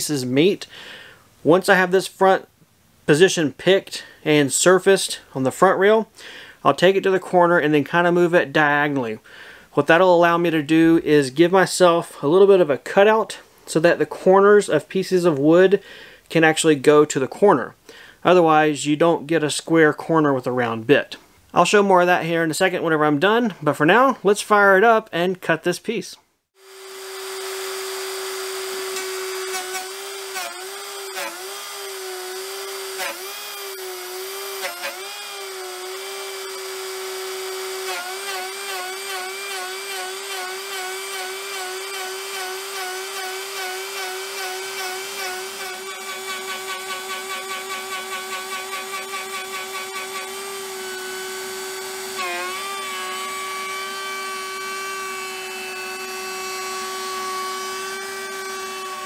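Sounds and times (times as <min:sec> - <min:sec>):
router bit whining through wood: 0:26.6 - 0:59.0.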